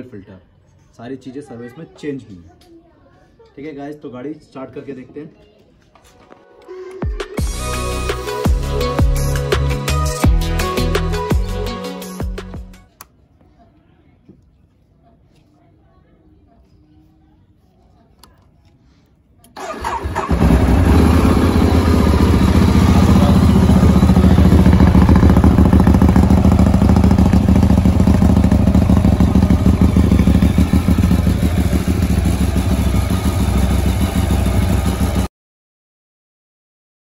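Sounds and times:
motorcycle engine idling: 0:19.6 - 0:35.3.

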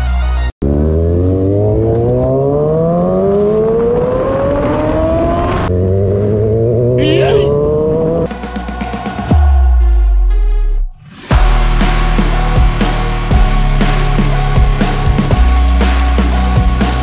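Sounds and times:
engine accelerating hard: 0:00.6 - 0:08.5.

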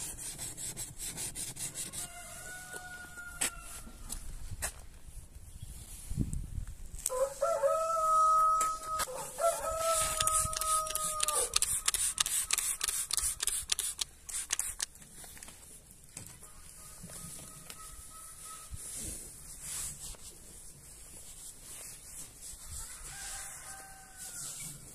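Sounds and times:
rooster crowing: 0:01.9 - 0:03.9, 0:07.1 - 0:12.1, 0:22.8 - 0:24.8
spray bottle squirts: 0:09.9 - 0:15.0.

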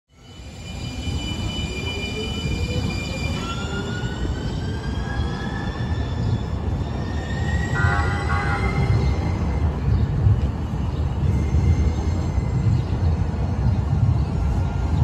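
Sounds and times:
train wheel squeal: 0:00.2 - 0:10.1
rumble of rolling wheels: 0:08.9 - 0:15.0.

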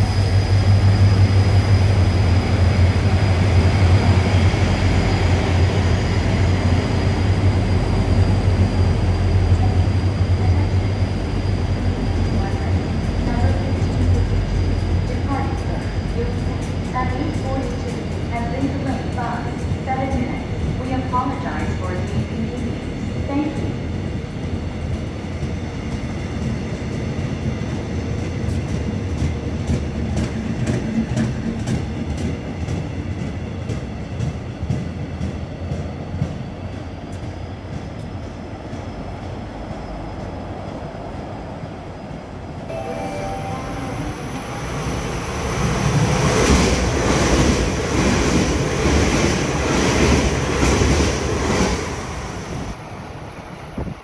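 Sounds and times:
high-speed train rushing past: 0:00.0 - 0:54.0
train wheels clicking over rail joints: 0:24.9 - 0:40.4.

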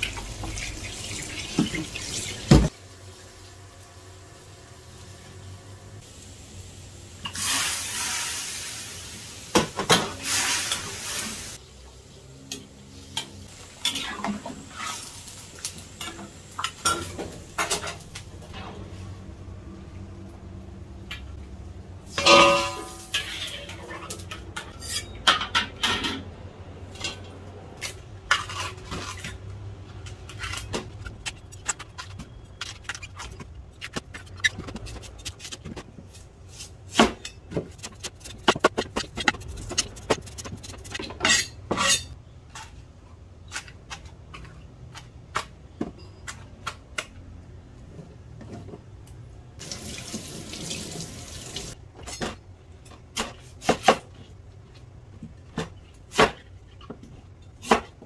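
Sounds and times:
metal pot clinking: 0:22.2 - 0:23.8.

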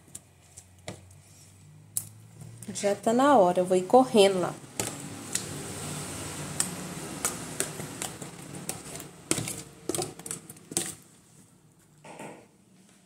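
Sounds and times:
fork scraping plastic tub: 0:06.6 - 0:11.0.

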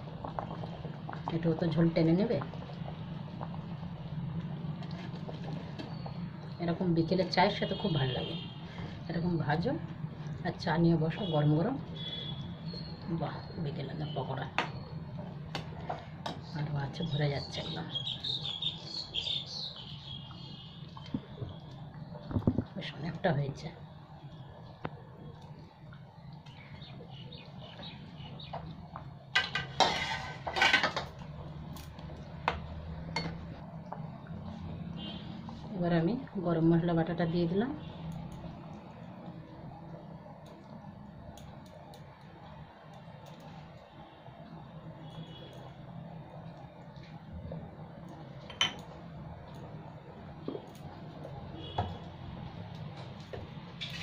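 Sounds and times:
gravy simmering and popping: 0:00.0 - 0:07.1
steady low hum: 0:00.0 - 0:53.8
curry bubbling: 0:00.0 - 0:54.0
metal spatula scraping pan: 0:29.4 - 0:31.0.

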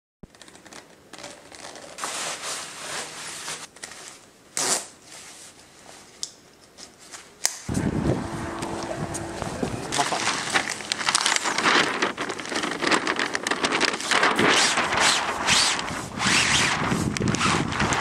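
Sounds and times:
low rumbling noise: 0:07.7 - 0:18.0
clothing rustling: 0:08.2 - 0:18.0
zipper zipping: 0:14.5 - 0:18.0.

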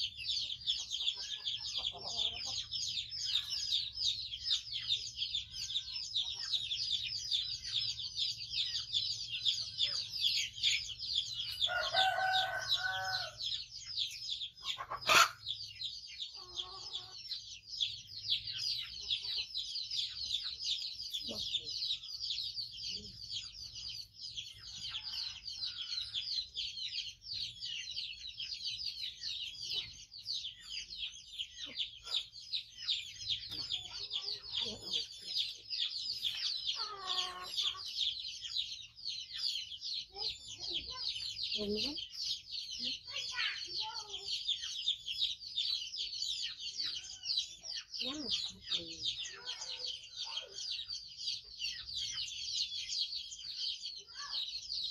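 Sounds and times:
chicks cheeping: 0:00.0 - 0:54.9
rooster crowing: 0:11.7 - 0:13.4.

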